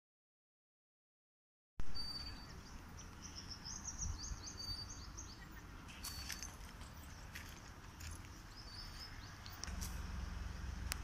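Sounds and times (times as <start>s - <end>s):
small birds chirping: 1.9s - 11.0s
low background rumble: 6.6s - 11.0s.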